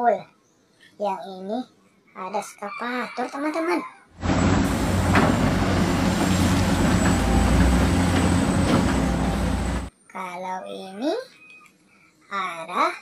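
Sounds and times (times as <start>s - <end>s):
excavator diesel engine rumble: 4.2s - 9.9s.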